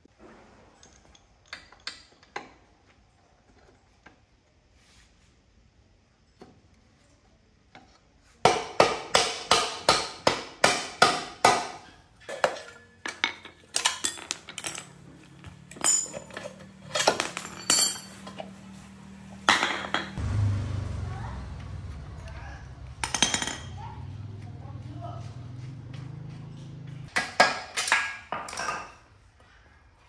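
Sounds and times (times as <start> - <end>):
metal clinks and knocks: 12.2 - 18.6, 22.1 - 24.4
hammer striking metal axle: 21.6 - 24.0.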